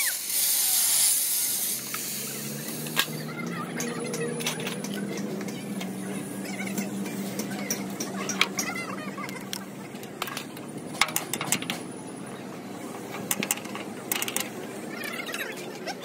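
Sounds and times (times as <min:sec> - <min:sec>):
voices: 0:01.6 - 0:16.0
sharp clicks and knocks: 0:06.7 - 0:11.9, 0:12.9 - 0:14.6.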